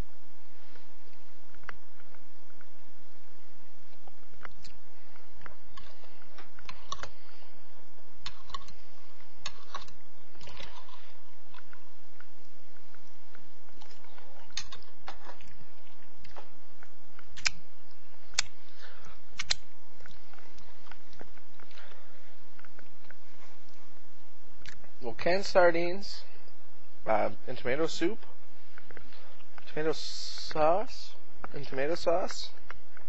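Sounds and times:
person chewing food: 3.9 - 23.9, 24.6 - 24.9.

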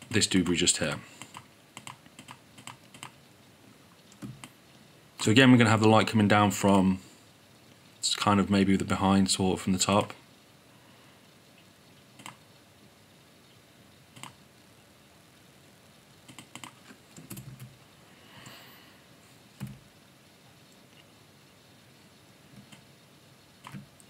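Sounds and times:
keyboard and mouse clicks: 1.2 - 3.2, 4.1 - 4.6, 12.2 - 12.4, 14.2 - 14.4, 16.3 - 17.7, 23.6 - 23.9.

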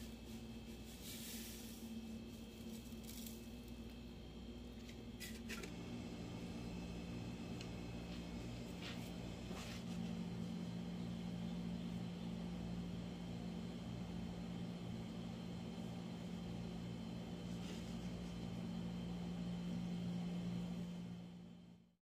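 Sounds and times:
soft rustle: 0.0 - 3.7.

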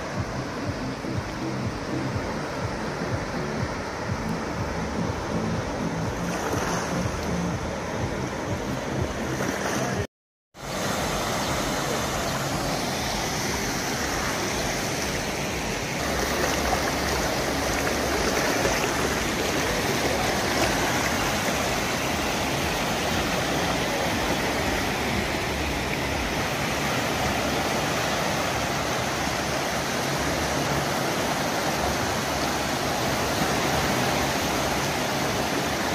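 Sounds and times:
water gushing into the sea: 15.9 - 35.4.

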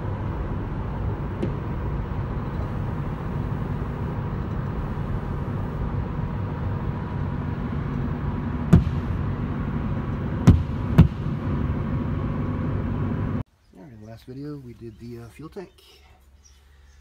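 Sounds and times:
low mechanical hum: 0.0 - 13.4
sharp knocks: 1.4 - 1.8, 8.7 - 9.3, 10.4 - 11.6.

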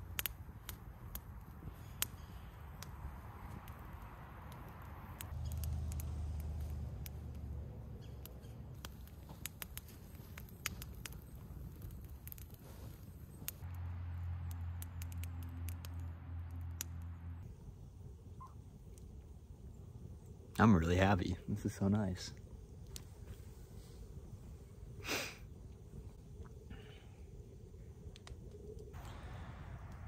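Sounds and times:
campfire crackling and popping: 0.0 - 30.0
low rumble: 28.9 - 30.0.

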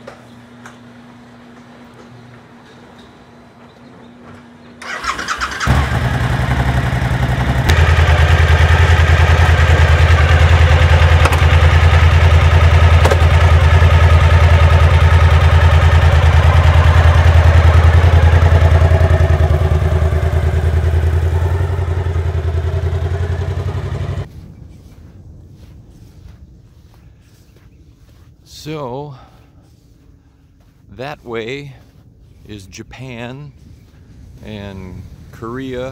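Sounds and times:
motorcycle engine starting and idling: 4.8 - 24.4.

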